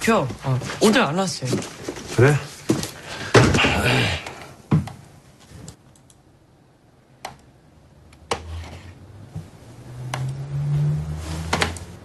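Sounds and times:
computer mouse clicks: 5.7 - 6.2, 10.1 - 10.4.

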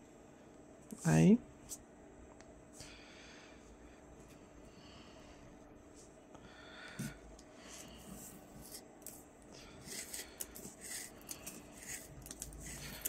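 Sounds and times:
cord rustling through stitches: 7.9 - 13.0.

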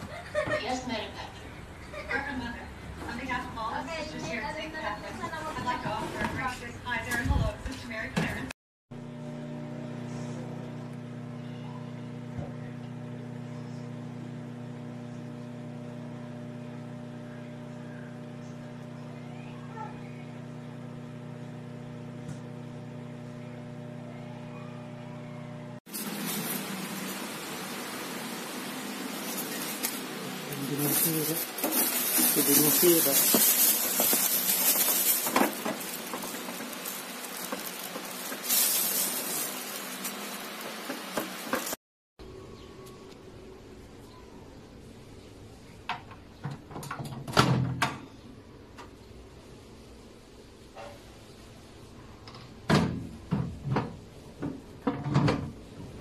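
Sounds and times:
microwave oven humming: 0.0 - 56.0
plastic wrapping crinkling: 29.2 - 41.8.

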